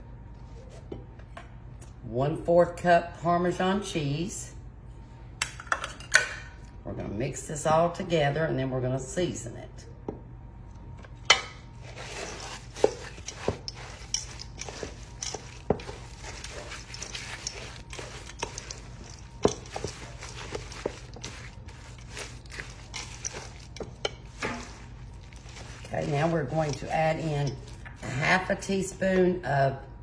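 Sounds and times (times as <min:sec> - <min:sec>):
steady low hum: 0:06.4 - 0:30.0
spoon scraping a metal bowl: 0:11.8 - 0:28.2.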